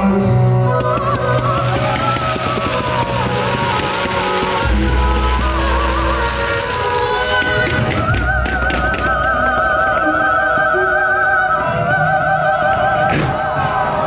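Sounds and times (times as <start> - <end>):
musical backing: 0.0 - 14.0
women singing opera: 0.0 - 14.0
firework cracks: 0.8 - 9.2.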